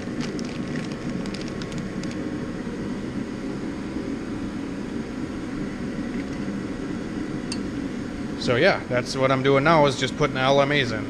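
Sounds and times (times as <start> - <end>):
metal parts clicking in plastic bag: 0.0 - 2.2
workshop background rumble: 0.0 - 3.0, 4.5 - 11.0.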